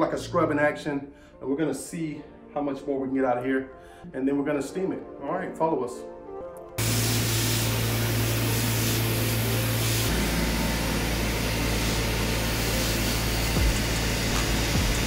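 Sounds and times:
machine hum: 6.8 - 15.0
spray wand hissing: 6.8 - 15.0.

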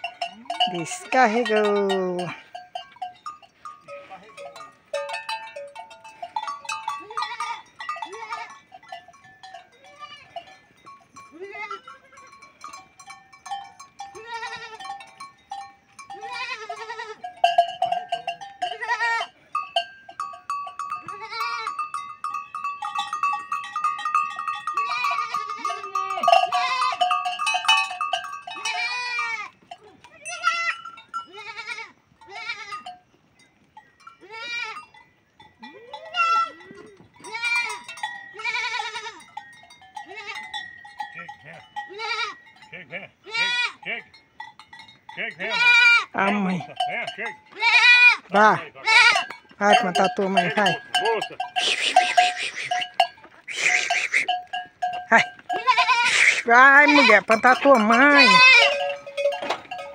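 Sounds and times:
goats bleating: 6.9 - 8.6, 9.7 - 10.6, 11.3 - 12.4, 14.0 - 15.0, 16.0 - 17.5, 18.1 - 19.4, 20.9 - 21.9, 24.7 - 27.6, 28.5 - 33.0, 34.2 - 34.9, 35.6 - 39.4, 40.0 - 40.6, 41.2 - 44.1, 45.2 - 59.9.

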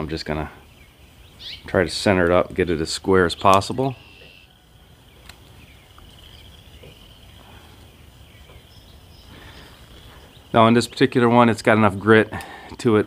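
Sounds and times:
high-pitched insect chorus: 0.0 - 12.4.

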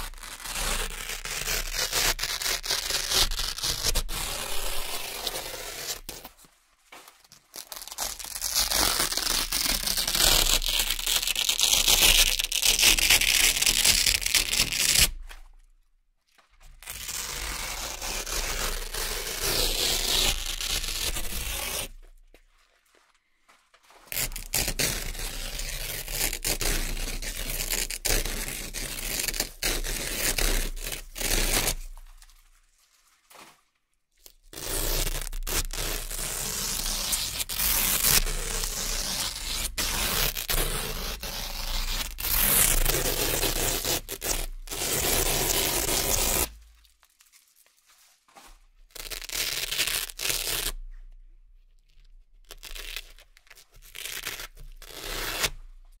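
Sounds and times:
velcro strips ripping apart: 0.0 - 15.4, 16.7 - 22.2, 23.9 - 32.4, 34.2 - 50.9, 52.0 - 55.8.

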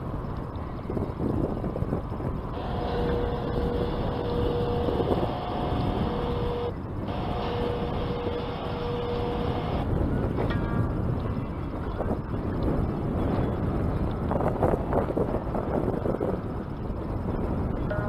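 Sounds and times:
wind noise: 0.0 - 18.0
steady whine: 1.4 - 14.5, 17.2 - 18.0
motor running: 2.5 - 9.9.

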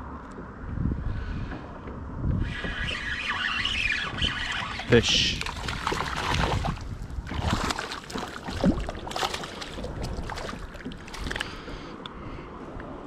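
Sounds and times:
fish splashing at water surface: 4.0 - 11.7.

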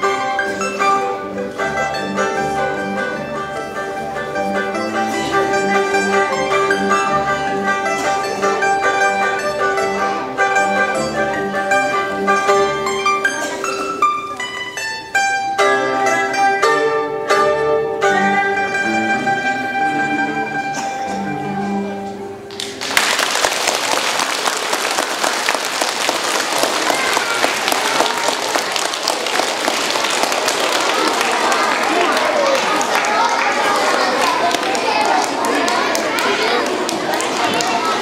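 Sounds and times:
mandolin tremolo melody: 0.0 - 22.5
plucked string accompaniment: 0.0 - 23.0, 23.8 - 38.0.

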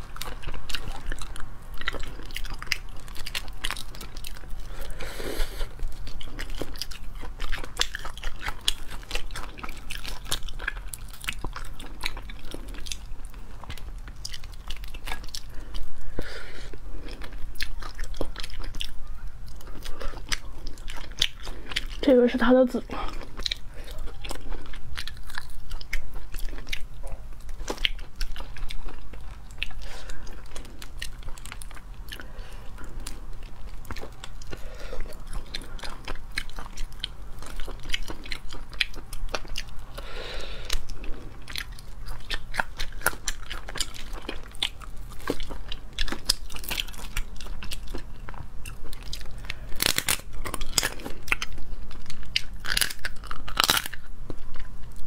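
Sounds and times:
biting and chewing: 0.0 - 55.0
shells cracking and crunching: 40.7 - 54.7.

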